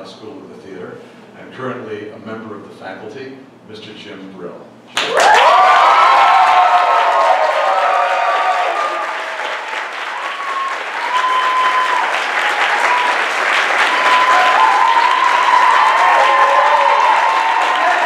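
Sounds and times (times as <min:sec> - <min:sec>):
audience applauding: 0:05.0 - 0:18.0.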